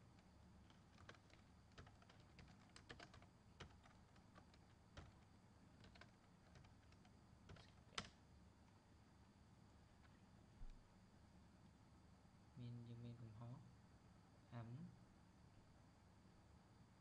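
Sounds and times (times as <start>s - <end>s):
typing on computer keyboard: 0.6s - 8.2s.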